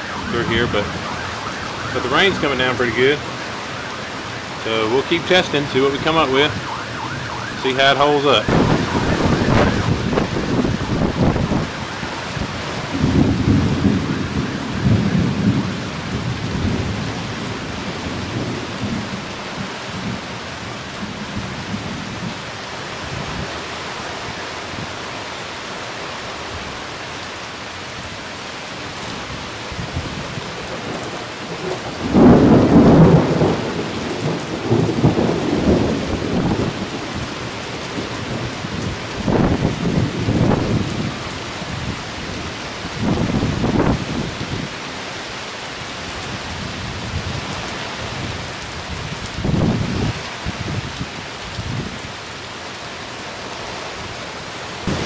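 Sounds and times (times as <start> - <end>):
rain on a tarp: 0.0 - 55.0
low rumbling surges: 5.0 - 15.6.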